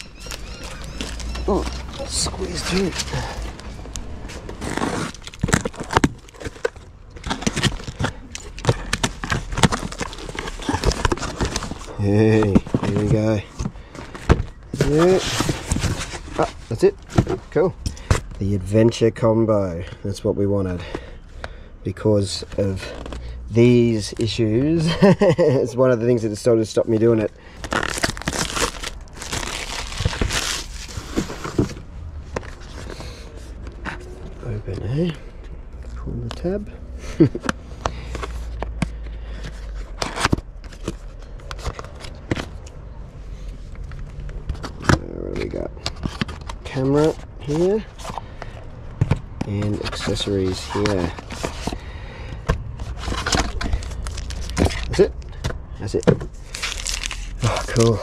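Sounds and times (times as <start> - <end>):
packaging rustling and crackling: 0.0 - 17.6, 27.0 - 34.2, 52.8 - 55.4, 56.3 - 58.0.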